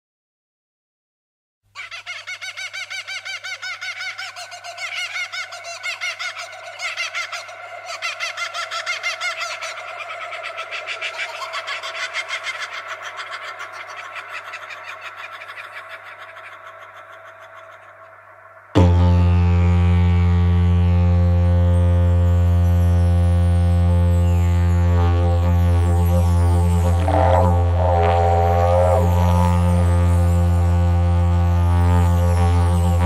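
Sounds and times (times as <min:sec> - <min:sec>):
birds chirping chorus: 0:03.6 - 0:18.8.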